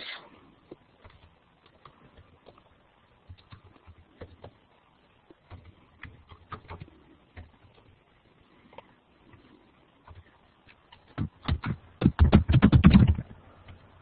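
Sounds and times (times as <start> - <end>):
low hiss: 0.0 - 12.0
faint clicks and taps: 0.6 - 8.0.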